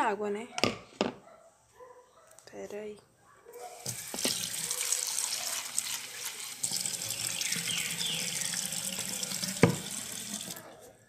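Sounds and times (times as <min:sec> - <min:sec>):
water pouring into pot: 0:03.8 - 0:10.6.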